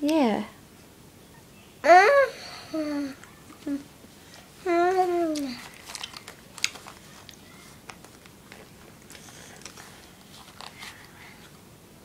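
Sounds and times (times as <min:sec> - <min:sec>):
child's drawn-out vocal sound: 0:01.8 - 0:03.8.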